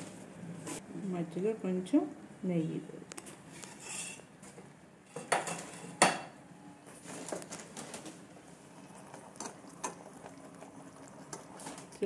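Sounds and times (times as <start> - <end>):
syrup bubbling: 7.8 - 12.0.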